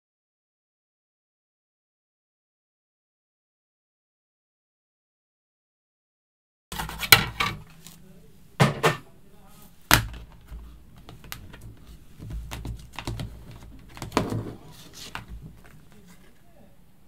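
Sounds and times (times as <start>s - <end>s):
rustling: 9.4s - 16.5s
plastic folder clacking on desk: 9.9s - 16.0s.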